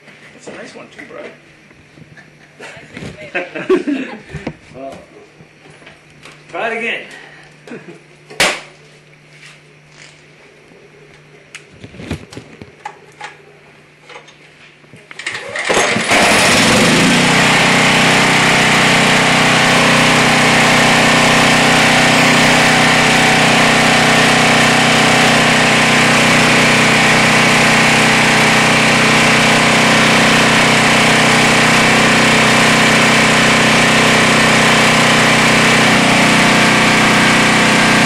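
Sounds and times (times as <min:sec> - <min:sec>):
generator engine running: 0:15.4 - 0:38.0.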